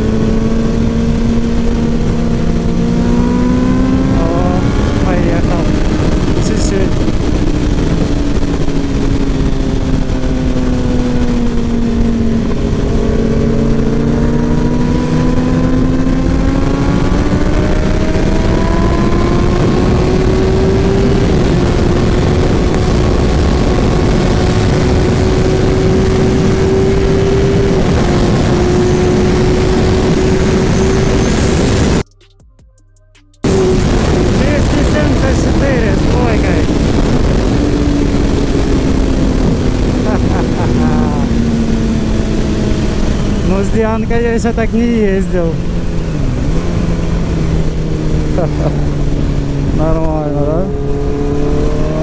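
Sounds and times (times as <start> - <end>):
wind rush on microphone: 0.0 - 32.1, 33.4 - 52.0
motorcycle engine: 0.0 - 32.4, 33.2 - 52.0.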